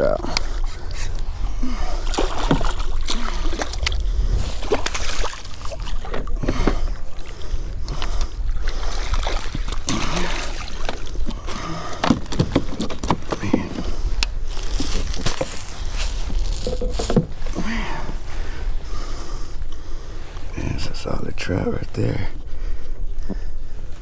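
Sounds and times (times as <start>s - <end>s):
fish splashing: 2.0s - 7.5s, 8.4s - 12.0s
wind rumble on microphone: 2.8s - 9.9s.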